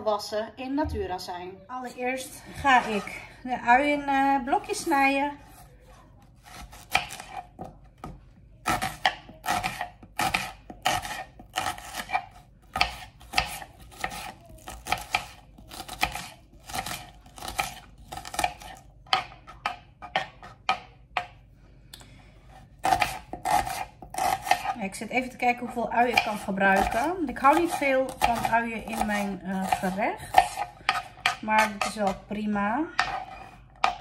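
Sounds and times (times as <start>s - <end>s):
knife chopping on cutting board: 6.4s - 21.4s, 22.5s - 24.8s, 25.9s - 32.2s, 33.0s - 34.0s.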